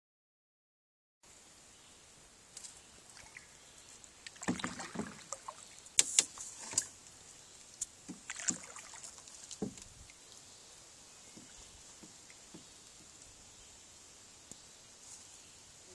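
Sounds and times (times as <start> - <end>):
canoe hull knocking: 4.4 - 6.9, 8.0 - 8.8, 9.5 - 10.0, 11.3 - 13.2.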